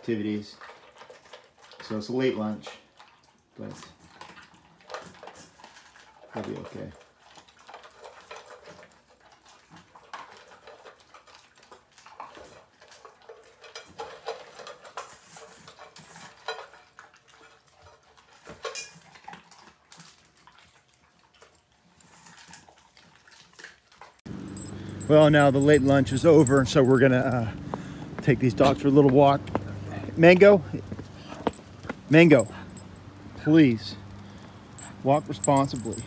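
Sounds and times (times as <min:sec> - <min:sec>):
cutlery and dishes clinking: 0:13.6 - 0:16.9, 0:18.5 - 0:19.1.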